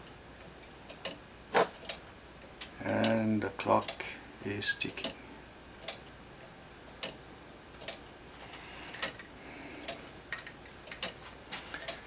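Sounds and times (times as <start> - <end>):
pendulum clock ticking: 7.0 - 7.2, 7.8 - 8.0.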